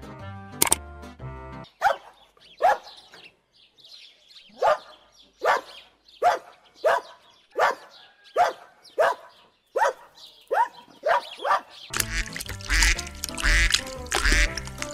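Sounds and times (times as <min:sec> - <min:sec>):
dog barking: 0:01.8 - 0:03.1, 0:04.5 - 0:11.9.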